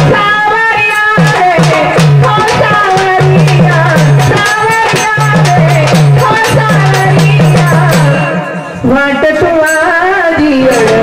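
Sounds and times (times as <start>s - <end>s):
fast drum and percussion rhythm: 0.0s - 11.0s
person singing: 0.0s - 11.0s.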